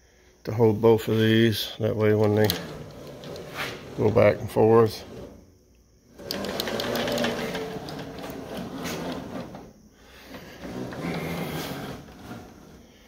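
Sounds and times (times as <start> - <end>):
carriage rolling on rails: 2.2 - 5.4, 6.2 - 9.7
cable carriers clattering: 6.2 - 9.7.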